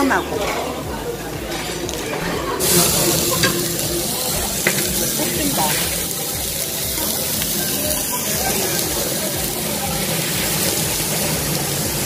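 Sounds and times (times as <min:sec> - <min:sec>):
beef sizzling on a grill: 0:02.6 - 0:12.0.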